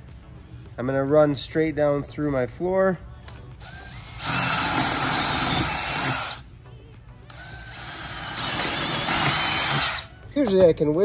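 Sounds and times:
cordless drill boring: 3.6s - 6.4s, 7.3s - 10.1s.

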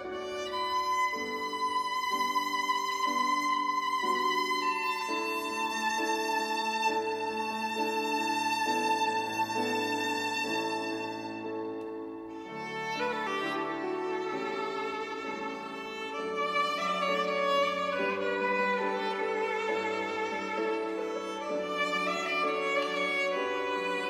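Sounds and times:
solo violin bowed: 0.0s - 24.0s.

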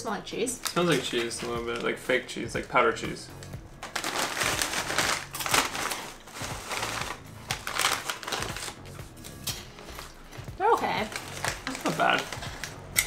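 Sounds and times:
plastic snack bag crinkling: 0.6s - 2.2s, 3.8s - 8.8s, 9.8s - 13.0s
crunching snacks: 3.8s - 8.8s, 11.2s - 13.0s.

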